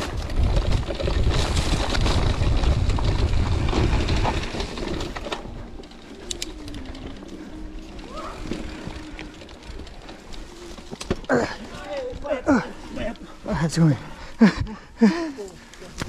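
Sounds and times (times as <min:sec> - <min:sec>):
wind buffeting microphone: 0:00.0 - 0:05.2.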